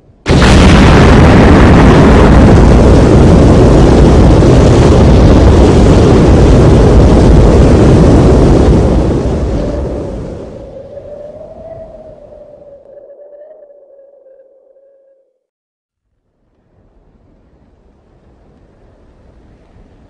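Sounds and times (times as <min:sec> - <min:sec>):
explosion blast and rumble: 0:00.0 - 0:13.1.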